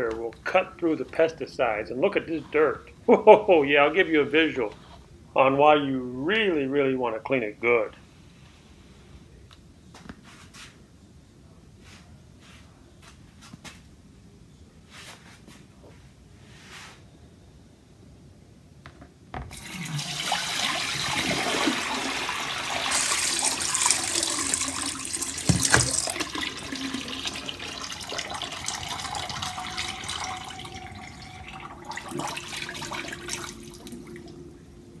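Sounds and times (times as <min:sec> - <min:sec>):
water pouring into a sink: 0:19.5 - 0:34.4
knock against a bowl: 0:25.5 - 0:26.0.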